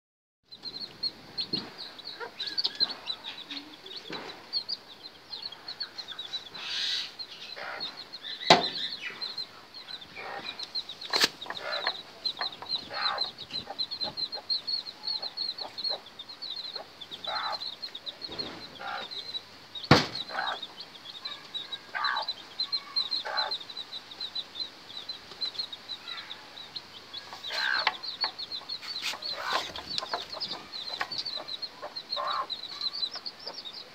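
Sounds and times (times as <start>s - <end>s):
chicks peeping: 0.5s - 33.9s
hen clucking: 0.5s - 33.9s
sharp knocks: 8.5s - 8.8s, 19.9s - 20.3s.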